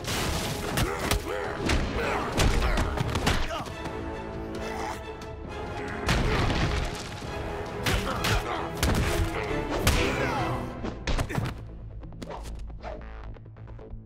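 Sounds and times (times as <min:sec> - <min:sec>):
dramatic music score: 0:00.0 - 0:14.0.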